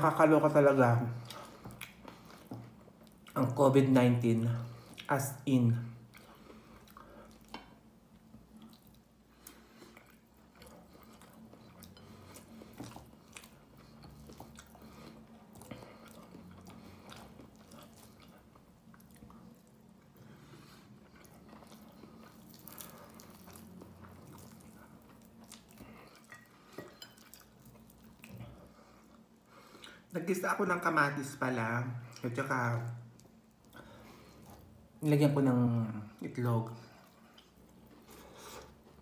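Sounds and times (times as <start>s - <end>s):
low steady hum: 0.0s - 39.0s
faint chewing: 1.1s - 3.5s, 6.1s - 30.1s, 32.9s - 34.9s, 36.7s - 39.0s.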